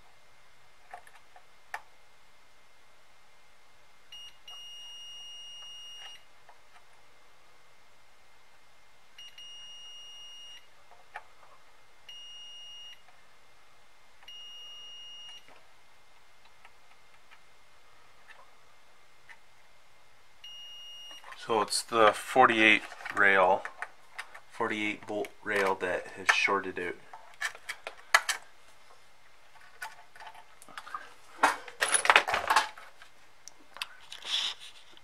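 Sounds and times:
multimeter continuity beeps: 0:04.1 - 0:06.2, 0:09.2 - 0:10.7, 0:12.1 - 0:13.0, 0:14.3 - 0:15.5, 0:20.4 - 0:21.4.

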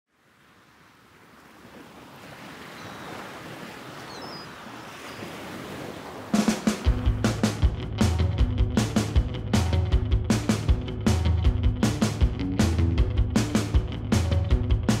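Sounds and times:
ocean surf washing: 0:00.1 - 0:10.9.

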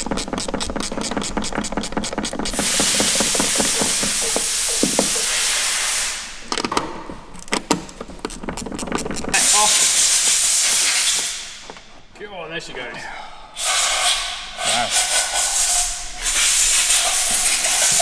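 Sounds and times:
metal fittings clicking and knocking: 0:00.0 - 0:05.5, 0:06.4 - 0:09.4
loud steady hissing: 0:02.5 - 0:06.6, 0:09.3 - 0:11.8, 0:13.5 - 0:18.0.

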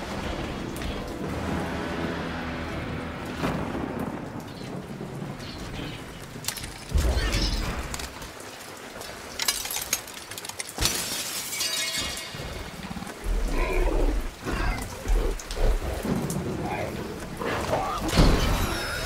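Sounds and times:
thunder: 0:00.0 - 0:07.8
heavy rain: 0:00.0 - 0:19.0.

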